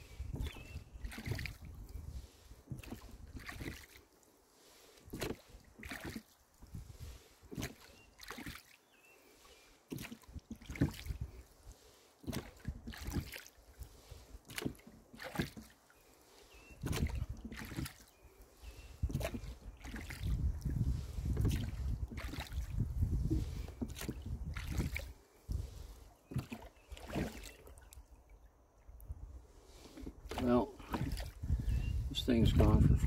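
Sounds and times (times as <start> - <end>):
wind rumble on microphone: 0.0 - 3.8, 6.6 - 7.4, 10.2 - 11.4, 12.3 - 14.2, 16.7 - 17.9, 18.7 - 27.3, 28.8 - 33.0
oar blades splashing: 0.0 - 28.2, 29.5 - 32.1
oars knocking in oarlocks: 2.7 - 4.0, 5.1 - 6.4, 7.5 - 8.7, 9.9 - 11.2, 12.2 - 13.5, 14.5 - 15.7, 16.8 - 18.1, 19.0 - 25.1, 26.3 - 27.5, 29.9 - 31.4.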